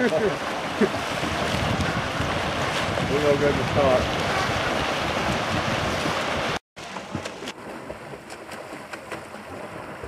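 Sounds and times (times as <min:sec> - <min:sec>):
swimmers splashing: 0:00.0 - 0:10.0
water lapping: 0:00.0 - 0:10.0
wind noise on microphone: 0:00.8 - 0:07.6.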